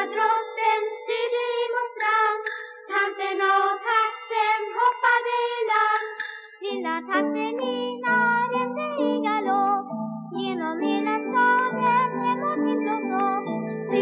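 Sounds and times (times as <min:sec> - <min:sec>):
children singing: 0:00.0 - 0:09.7, 0:10.4 - 0:14.0.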